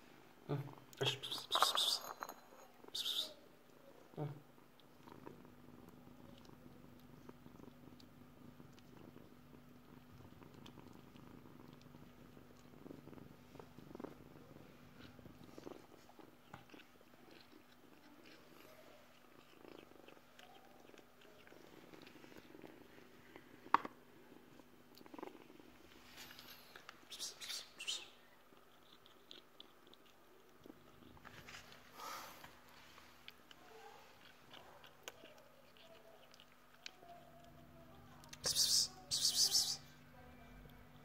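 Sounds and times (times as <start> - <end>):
kitten purring: 0.3 - 39.9
eating clicks: 34.2 - 37.6.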